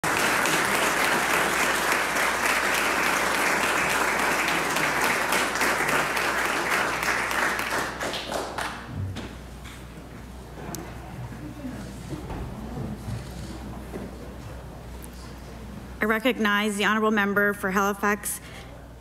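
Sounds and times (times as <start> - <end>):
crowd applauding: 0.0 - 8.9.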